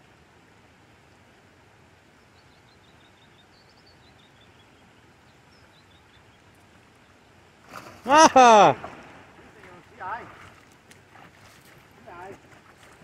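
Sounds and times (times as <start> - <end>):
river current rushing: 7.6 - 12.9.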